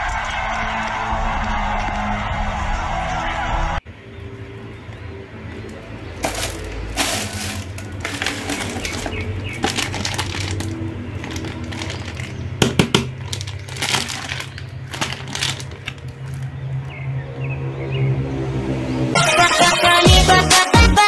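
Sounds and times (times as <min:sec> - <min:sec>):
plastic bag crinkling: 0:06.2 - 0:16.6
background music: 0:19.1 - 0:21.0.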